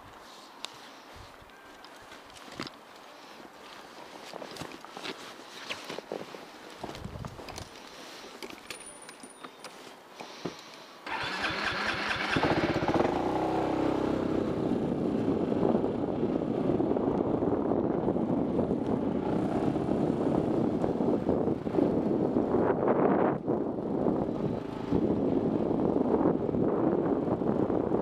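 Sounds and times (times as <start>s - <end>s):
motorcycle electric starter: 11.0s - 13.4s
motorcycle engine revving and running: 11.1s - 15.1s.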